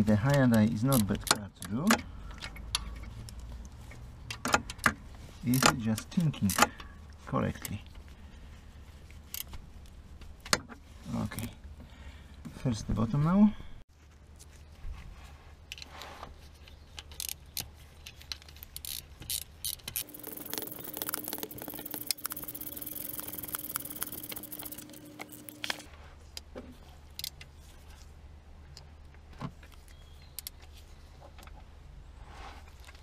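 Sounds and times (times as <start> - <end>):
steady whirring hum: 20.0 - 25.9.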